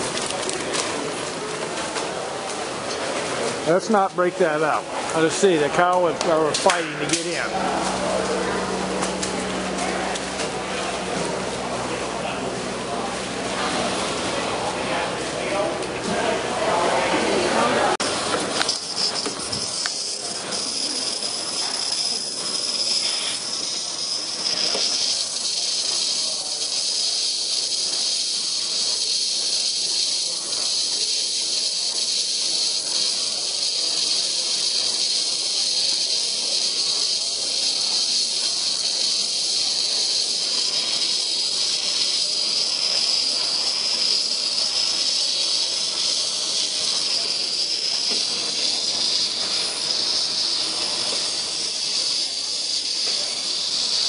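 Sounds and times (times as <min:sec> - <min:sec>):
milking machine vacuum hiss: 0:18.0 - 0:54.0.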